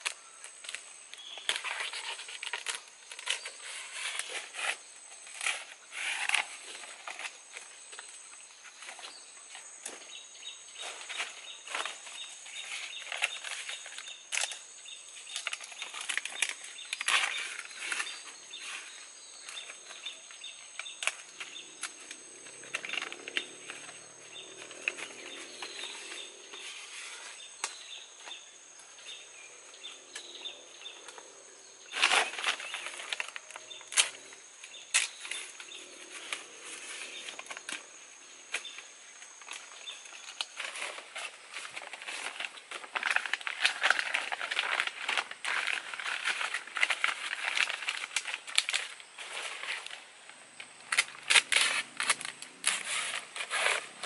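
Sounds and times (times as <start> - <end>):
leaves rustling and crackling: 0.0 - 54.0.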